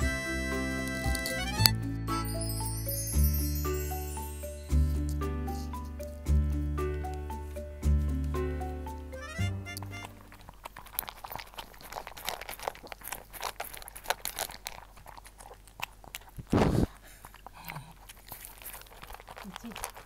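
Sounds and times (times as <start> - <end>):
music jingle: 0.0 - 10.2
dog crunching dry kibble: 9.8 - 20.0
loud deep thump: 16.4 - 16.9.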